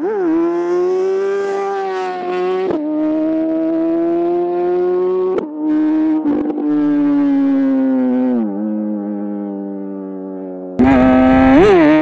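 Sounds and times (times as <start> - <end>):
superbike passing at full throttle: 0.0 - 5.7, 10.8 - 12.0.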